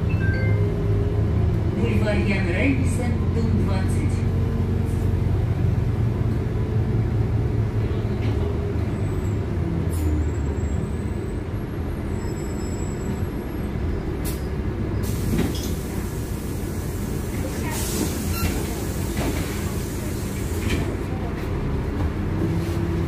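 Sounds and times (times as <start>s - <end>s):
bus rumbling: 0.0s - 23.0s
brief air hiss: 17.7s - 20.6s.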